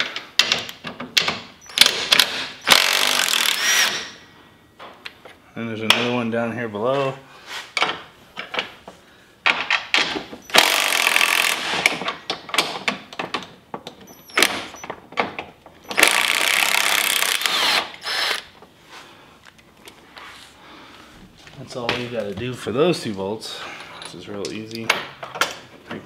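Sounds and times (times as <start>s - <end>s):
cordless drill driving bolts: 1.6s - 4.2s, 10.4s - 12.1s, 14.0s - 14.9s, 15.8s - 18.6s.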